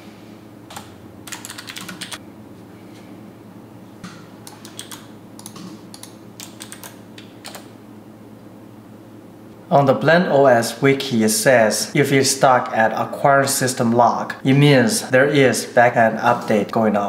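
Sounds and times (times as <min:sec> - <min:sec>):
keyboard typing: 0:00.7 - 0:02.2, 0:04.4 - 0:07.7.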